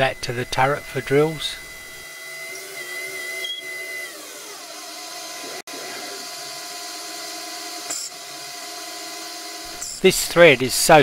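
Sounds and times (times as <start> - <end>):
lathe motor whine: 0.0 - 11.0.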